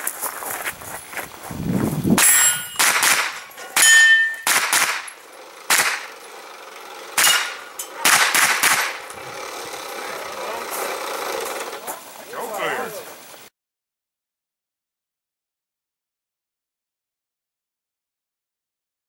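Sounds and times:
steel targets clanging: 2.1 - 12.0
gunshots: 2.2 - 6.2, 7.2 - 9.0.

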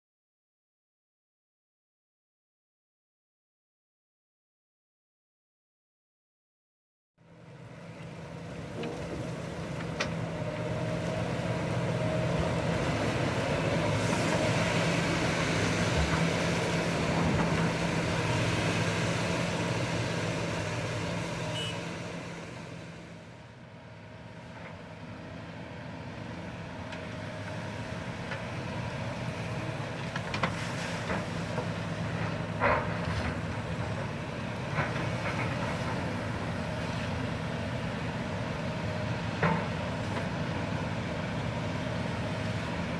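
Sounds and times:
excavator diesel engine running: 7.3 - 42.9.

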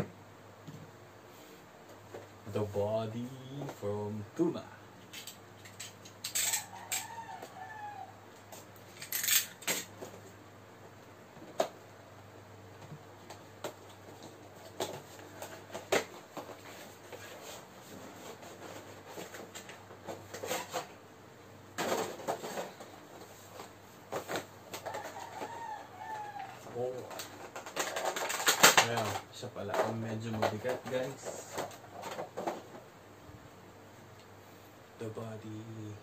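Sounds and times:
rooster crowing: 6.4 - 8.3, 24.7 - 26.8
cardboard and plastic crinkling: 21.8 - 25.5, 26.9 - 32.8.

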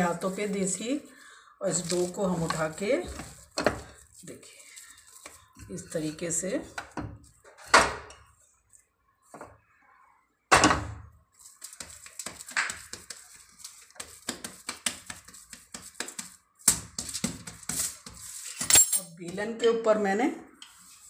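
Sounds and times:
foil crinkling: 1.7 - 5.5.

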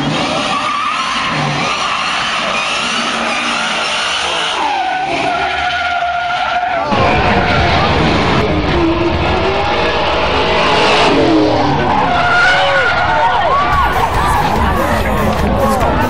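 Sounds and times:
tires squealing and skidding: 0.0 - 16.0
low engine rumble: 13.0 - 16.0.

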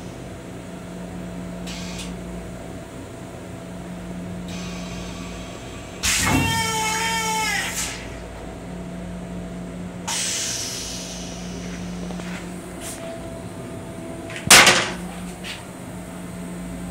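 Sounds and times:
steady low hum: 7.8 - 16.9
hissing rush of toilet flush: 10.1 - 11.7.

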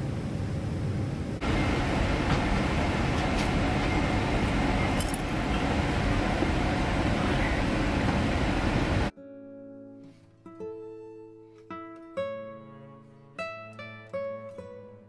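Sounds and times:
airliner cabin noise: 0.0 - 9.1.

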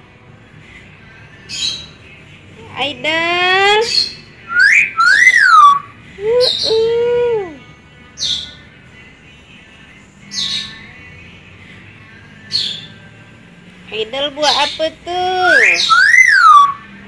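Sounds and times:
myna bird calling: 3.7 - 7.5, 14.4 - 16.9.

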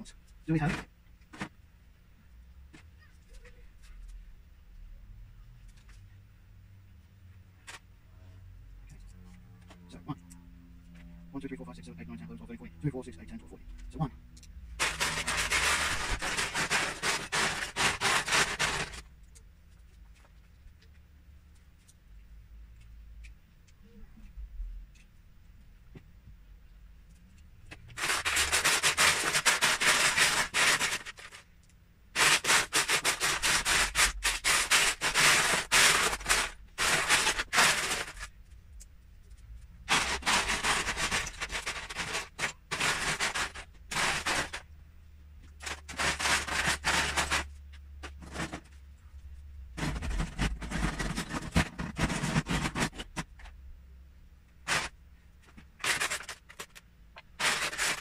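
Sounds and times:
plastic bricks rattling: 14.8 - 19.0, 28.0 - 31.4, 32.2 - 38.3, 39.9 - 44.6, 45.6 - 47.5, 54.7 - 54.9, 55.8 - 56.8, 57.4 - 58.0.

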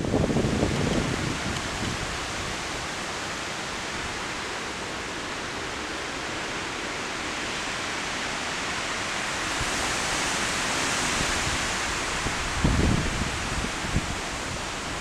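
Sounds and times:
heavy rain: 0.0 - 15.0
storm wind through trees: 0.0 - 15.0.

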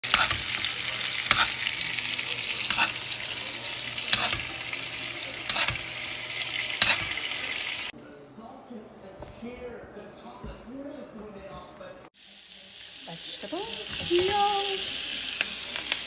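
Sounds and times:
steak sizzling in a pan: 0.0 - 7.9, 12.2 - 16.0
metal utensil clicking on pan: 0.1 - 1.6, 2.6 - 3.1, 4.0 - 4.6, 5.4 - 6.1, 6.7 - 7.3.

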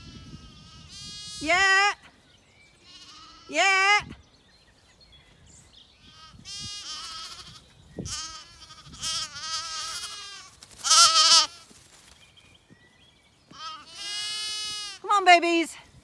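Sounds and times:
lambs bleating: 0.0 - 1.8, 2.8 - 3.9, 6.0 - 11.7, 13.5 - 15.2.

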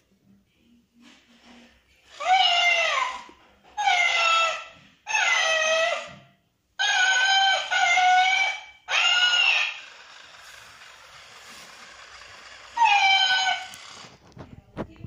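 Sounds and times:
toy cat electronic meow: 6.8 - 10.4, 11.3 - 14.0.

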